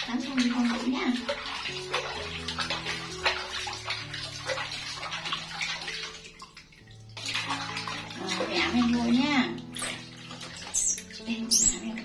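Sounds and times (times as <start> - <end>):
bath water splashing: 0.0 - 12.0.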